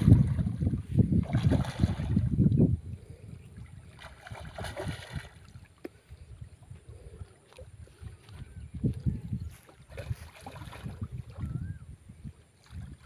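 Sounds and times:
fish splashing in water: 1.2 - 2.3, 3.7 - 6.0, 9.6 - 11.6.

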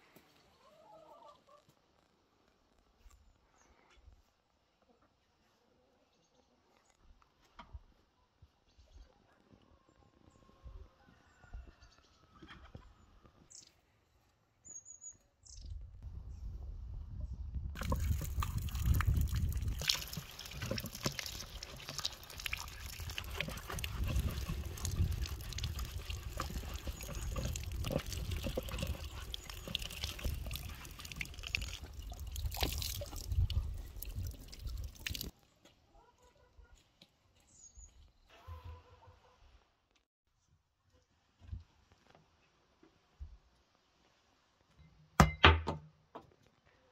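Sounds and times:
water running from tap: 17.8 - 35.3
water splashing in concrete basin: 17.8 - 35.3.

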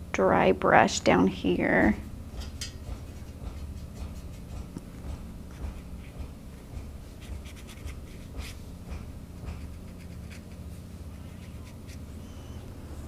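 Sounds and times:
low steady hum: 0.0 - 13.0
brush scratching on paper: 3.0 - 4.7, 7.1 - 8.6, 9.5 - 12.1.

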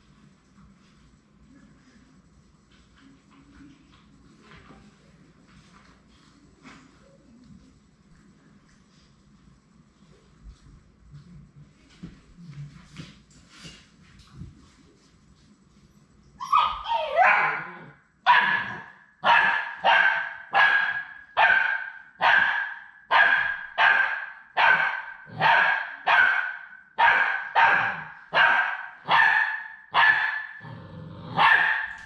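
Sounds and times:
puppy yelps sliding in pitch: 16.4 - 18.8
puppy barking high-pitched: 16.4 - 30.6, 31.3 - 32.0.

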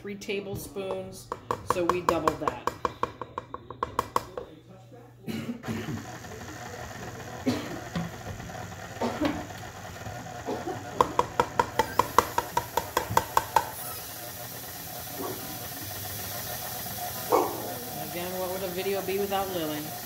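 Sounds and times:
stand mixer running: 5.6 - 20.0.

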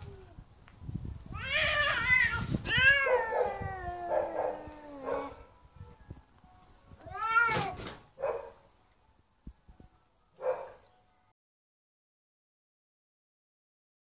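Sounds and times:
cats yowling in a fight: 1.4 - 5.4, 7.0 - 8.0.

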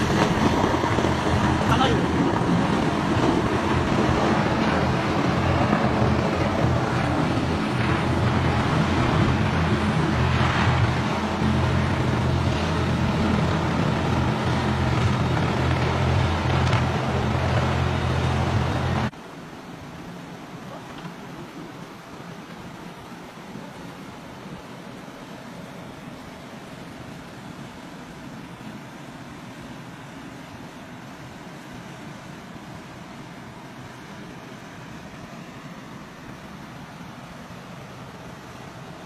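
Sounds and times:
helicopter rotor and engine: 0.0 - 19.1
steady hiss: 0.0 - 39.0.

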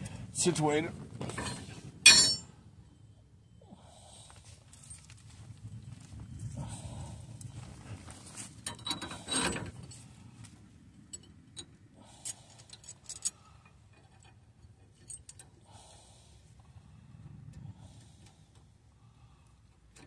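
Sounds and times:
small metal hardware clinking: 1.4 - 2.5, 11.1 - 15.6.

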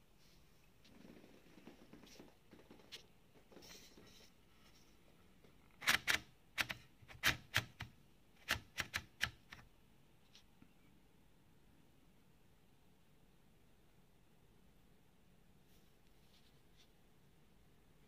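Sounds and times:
faint clicks and rustles: 0.2 - 5.8
typewriter keys clacking: 5.8 - 9.6.

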